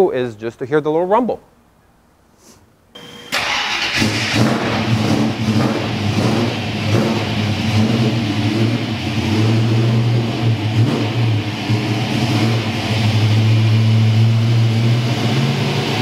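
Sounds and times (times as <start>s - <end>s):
car engine idling: 3.3s - 16.0s.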